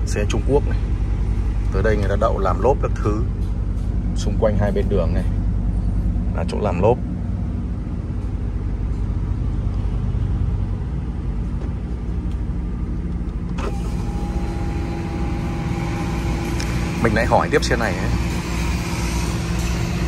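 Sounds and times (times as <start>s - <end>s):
diesel engine running steadily: 0.0s - 20.0s
outside traffic noise: 0.0s - 20.0s
power window motor whine: 13.5s - 20.0s.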